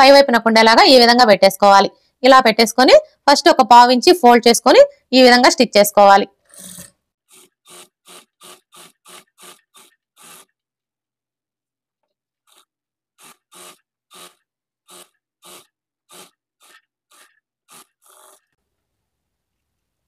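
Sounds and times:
fabric stitching rasps: 0:06.4 - 0:10.6, 0:12.4 - 0:18.6.

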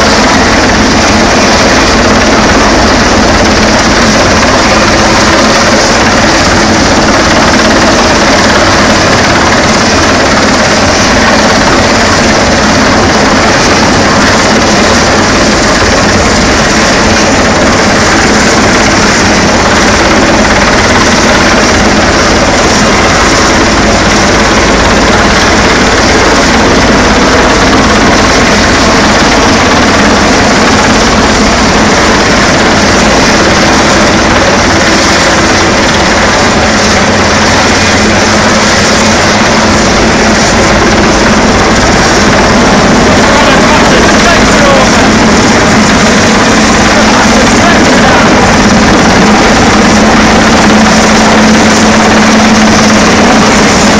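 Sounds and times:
helicopter hovering overhead: 0:00.0 - 0:53.9.

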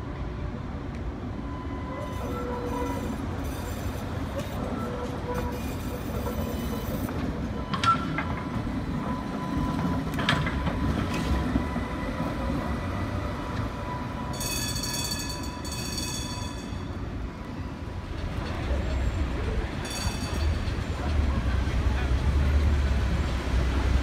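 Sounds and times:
streetcar rumbling on rails: 0:00.0 - 0:24.0
high ringing tone: 0:13.9 - 0:17.1.

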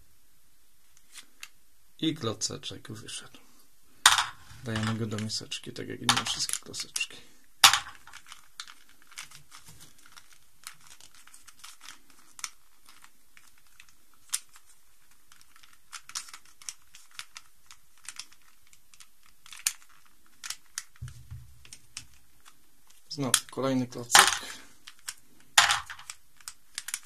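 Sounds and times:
plastic puzzle cube clicking: 0:06.1 - 0:27.0.

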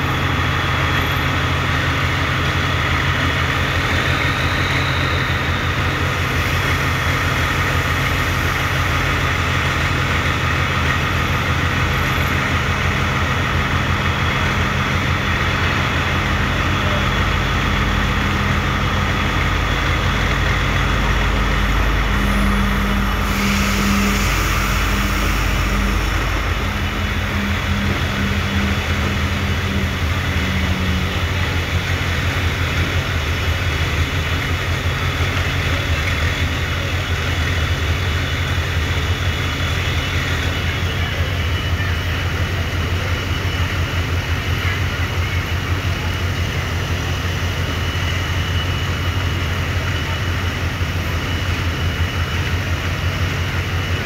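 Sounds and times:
diesel train engines humming: 0:00.0 - 0:54.0
train rumbling in: 0:00.0 - 0:54.0
hiss: 0:22.2 - 0:36.6.

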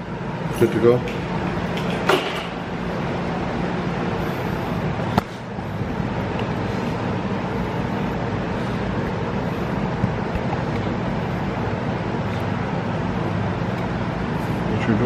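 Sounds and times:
machinery humming: 0:00.0 - 0:15.0.

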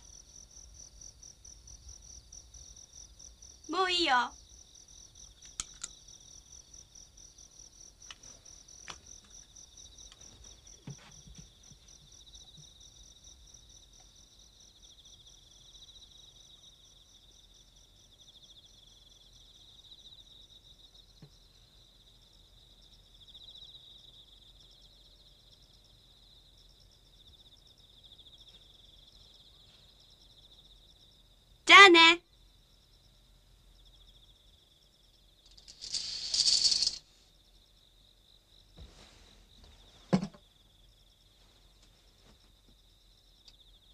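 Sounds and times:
crickets trilling: 0:00.0 - 0:24.8, 0:32.3 - 0:38.8
faint clicks: 0:05.4 - 0:06.0.

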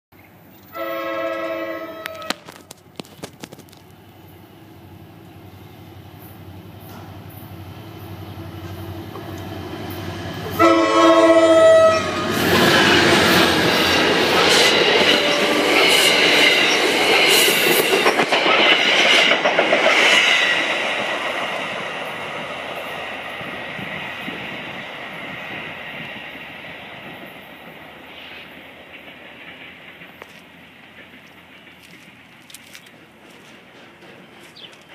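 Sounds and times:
locomotive horn blast: 0:00.7 - 0:02.4, 0:10.5 - 0:12.4
train wheels clacking: 0:12.4 - 0:34.9.

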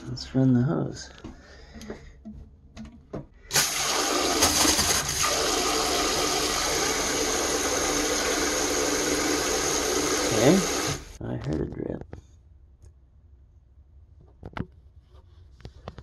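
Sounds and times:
water jet into toilet bowl: 0:03.5 - 0:11.2.

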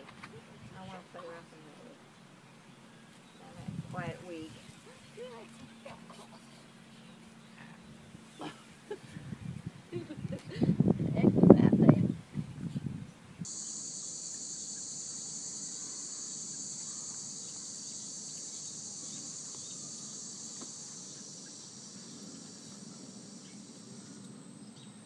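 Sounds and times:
insects chirring: 0:13.4 - 0:25.0.

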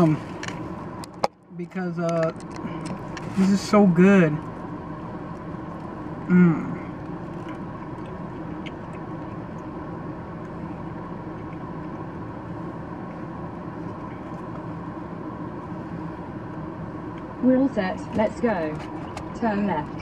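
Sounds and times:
car engine idling hum: 0:00.0 - 0:20.0
person saying mmm: 0:06.3 - 0:06.8.

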